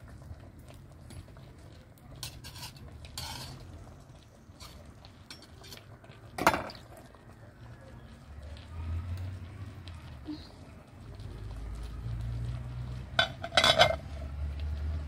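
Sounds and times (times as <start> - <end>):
knife scraping a metal pot: 2.2 - 3.6.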